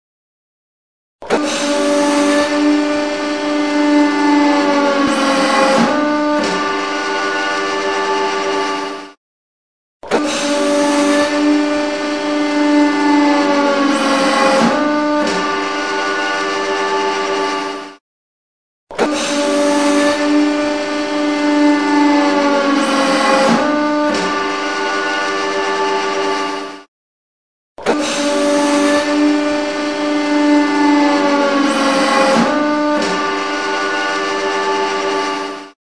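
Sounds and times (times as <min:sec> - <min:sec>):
hydraulic press droning: 0:01.2 - 0:09.2, 0:10.0 - 0:18.0, 0:18.9 - 0:26.9, 0:27.8 - 0:35.8.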